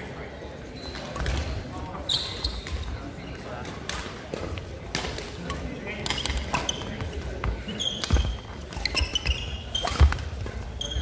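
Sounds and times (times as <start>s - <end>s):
shoes squeaking on wooden floor: 6.2s - 11.0s
racket hitting shuttlecock: 9.8s - 10.6s.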